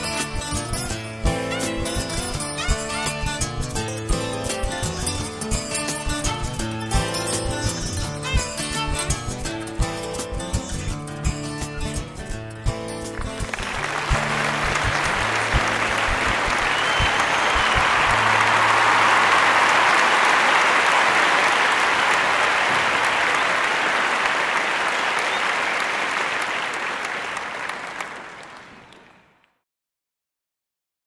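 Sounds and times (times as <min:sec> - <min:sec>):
audience applause: 0:13.1 - 0:29.3.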